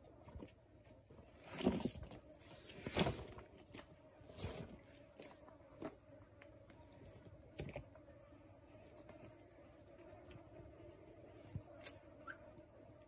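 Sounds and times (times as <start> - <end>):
faint steady hum: 0.0 - 13.0
faint crunches and scrapes: 0.1 - 8.0.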